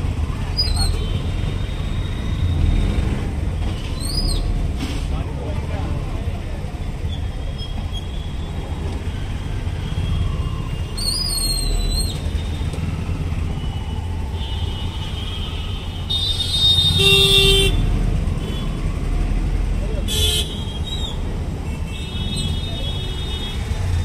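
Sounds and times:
traffic engines rumbling: 0.0 - 24.0
vehicle horns honking: 14.5 - 17.9, 20.1 - 21.0.

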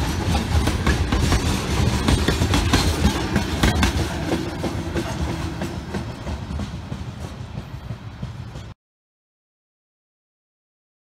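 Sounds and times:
freight train rumbling past: 0.0 - 8.8
wheels clicking over rail joints: 0.0 - 8.8.

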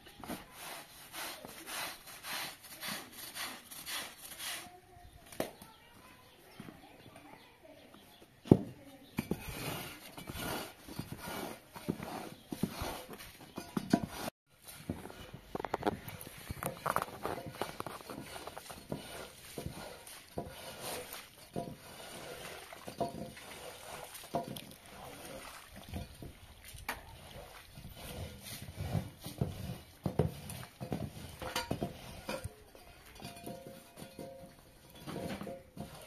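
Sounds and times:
brush scrapes and knocks: 0.0 - 6.2, 8.5 - 36.0
brush scrubbing wet carpet: 0.4 - 4.8, 17.6 - 25.8, 27.1 - 30.8.

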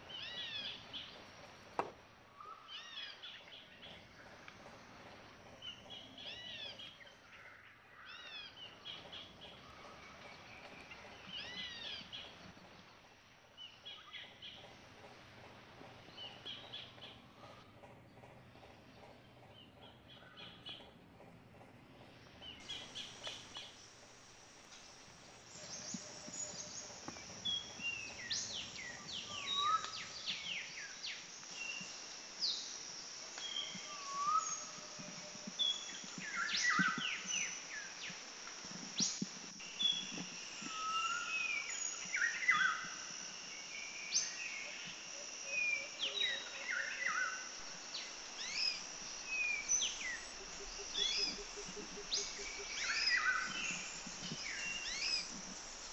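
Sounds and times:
steady high-pitched hiss: 0.0 - 55.9
birds chirping and calling: 8.0 - 12.7, 25.6 - 30.7, 48.4 - 55.9.

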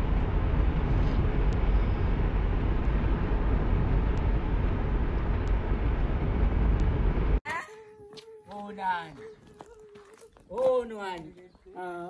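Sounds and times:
road and wind noise: 0.0 - 7.4.

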